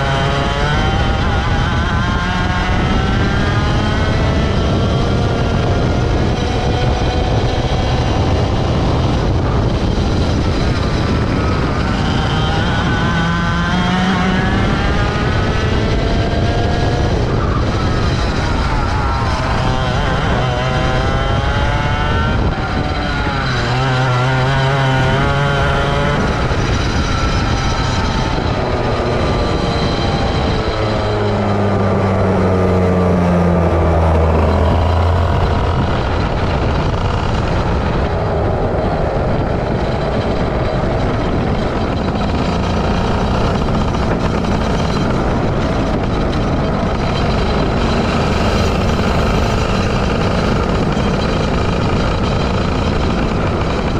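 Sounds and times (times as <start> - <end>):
kart engine revving: 0.0 - 53.9.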